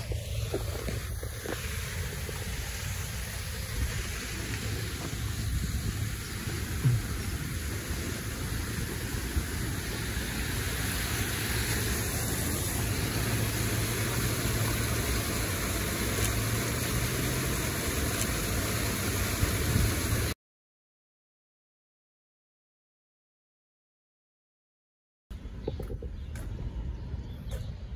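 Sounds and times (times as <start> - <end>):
road traffic hum: 0.0 - 20.3, 25.3 - 27.9
waterfall rushing: 0.0 - 20.4.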